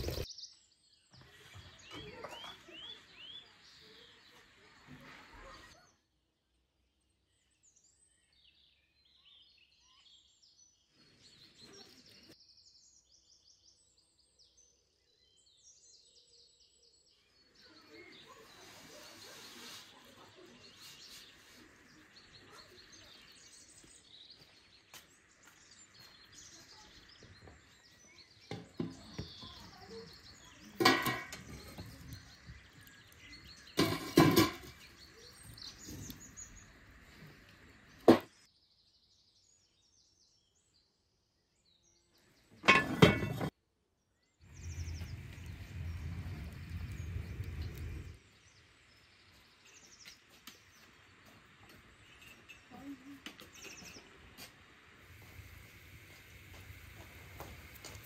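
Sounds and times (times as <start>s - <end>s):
steady low rumble: 44.5s - 49.2s.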